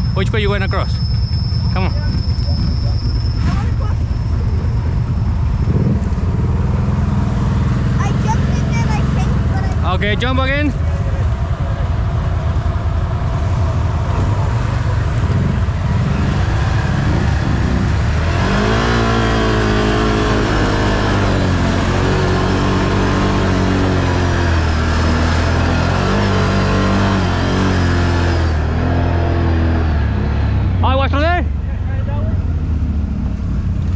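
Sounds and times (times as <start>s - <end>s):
off-road vehicle engine revving: 0.0s - 33.9s.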